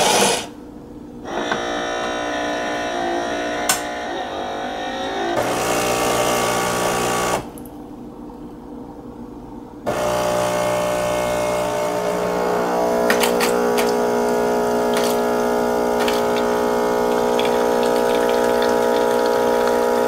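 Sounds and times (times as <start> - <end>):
espresso machine pump humming: 10.0 - 20.0.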